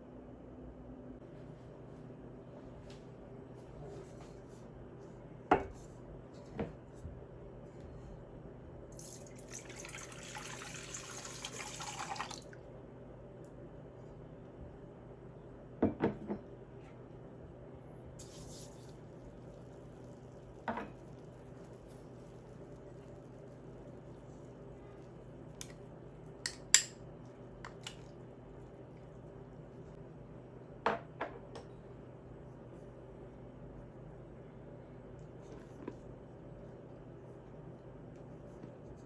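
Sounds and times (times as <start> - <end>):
low steady hum: 0.0 - 39.0
liquid pouring into bowl: 9.0 - 12.5.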